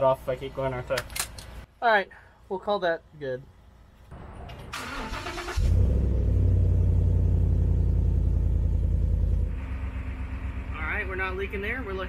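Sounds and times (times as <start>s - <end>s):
truck engine starting and idling: 4.2s - 12.0s.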